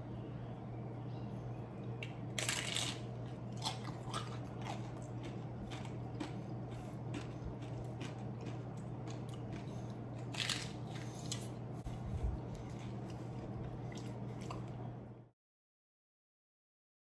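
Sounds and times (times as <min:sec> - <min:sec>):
steady low hum: 0:00.0 - 0:15.4
crunchy chewing: 0:02.0 - 0:14.9.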